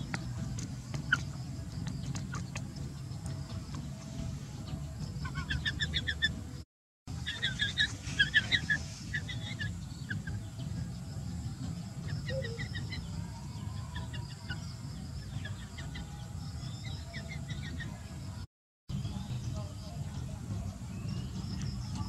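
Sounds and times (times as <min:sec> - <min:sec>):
steady low rumble: 0:00.0 - 0:16.8
high bird chirps: 0:07.2 - 0:10.5.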